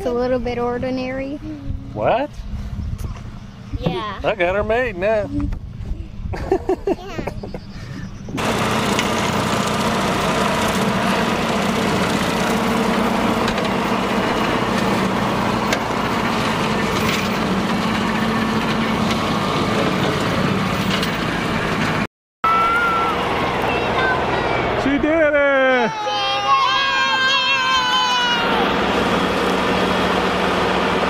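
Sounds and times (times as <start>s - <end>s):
rotary cutter spinning through grass: 8.4s - 22.0s
tractor diesel engine under load: 8.4s - 25.2s, 26.2s - 31.0s.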